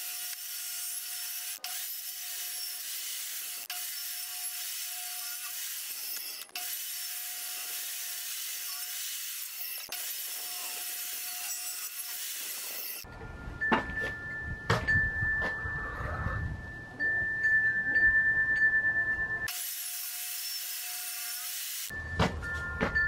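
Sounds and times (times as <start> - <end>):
table saw cutting: 0.0 - 13.1, 19.5 - 21.9.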